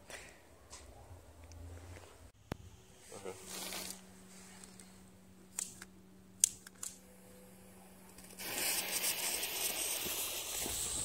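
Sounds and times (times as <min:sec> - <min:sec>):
fuse hissing: 0:08.2 - 0:11.0.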